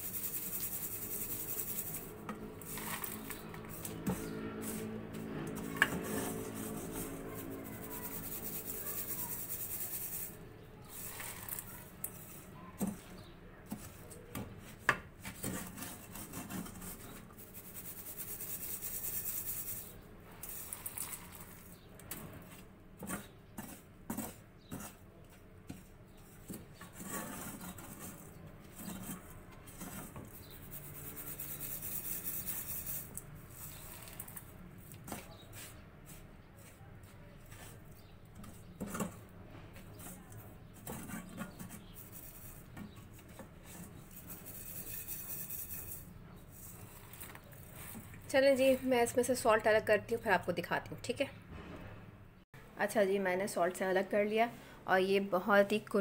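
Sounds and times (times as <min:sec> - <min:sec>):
salt hissing through mesh: 0:00.0 - 0:03.9, 0:07.8 - 0:12.2.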